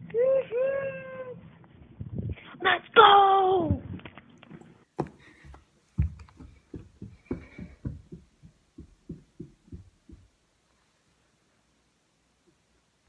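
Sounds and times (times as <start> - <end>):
footsteps on carpeted stairs: 4.5 - 10.9.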